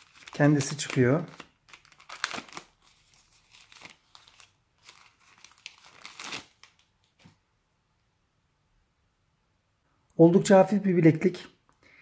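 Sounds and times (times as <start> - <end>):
plastic wrap crinkling: 0.0 - 7.3.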